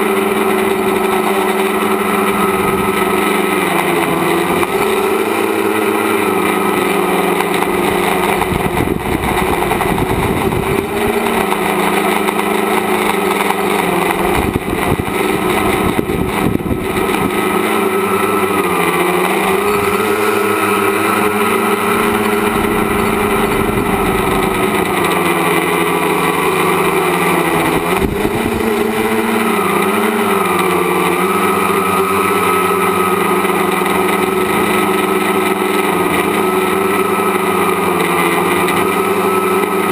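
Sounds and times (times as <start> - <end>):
drone motors whining: 0.0 - 39.9
wind buffeting microphone: 7.7 - 11.4, 14.2 - 17.5, 19.7 - 28.9.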